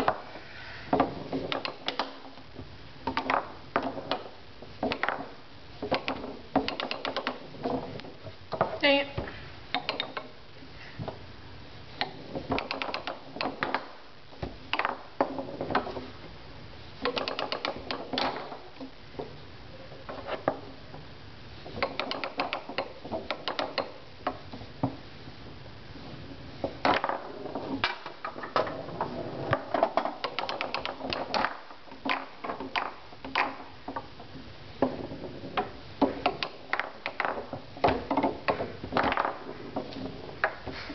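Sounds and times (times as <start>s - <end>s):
foosball ball clicks and clacks: 0.0s - 0.3s, 0.9s - 8.8s, 9.7s - 10.4s, 12.0s - 16.3s, 17.0s - 19.4s, 20.0s - 21.0s, 21.6s - 25.0s, 26.6s - 40.9s
foosball rods knocking: 0.0s - 10.4s, 11.9s - 40.9s.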